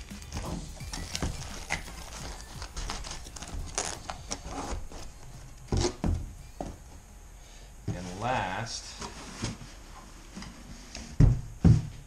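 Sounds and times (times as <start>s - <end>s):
cardboard rustling: 0.3s - 6.9s.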